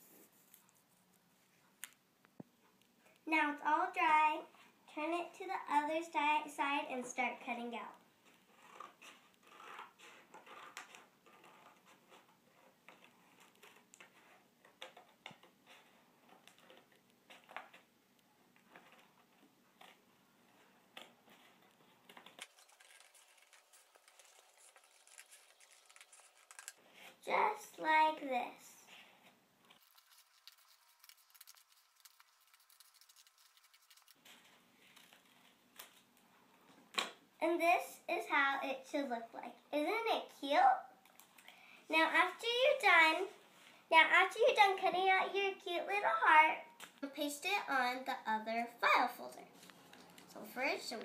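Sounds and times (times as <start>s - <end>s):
scissors snipping paper: 21.0s - 26.8s, 29.7s - 34.2s.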